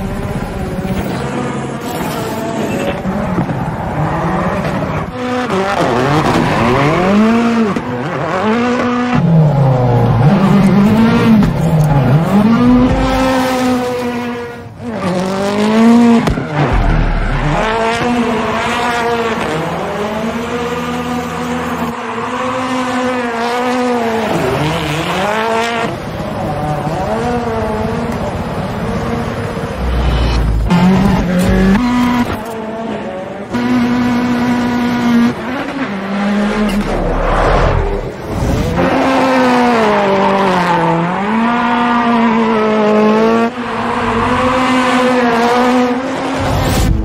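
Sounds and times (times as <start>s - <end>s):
rally car engine revving: 0.0s - 47.0s
tire squeal: 5.8s - 7.4s, 15.9s - 19.3s, 21.6s - 23.3s, 43.5s - 45.4s.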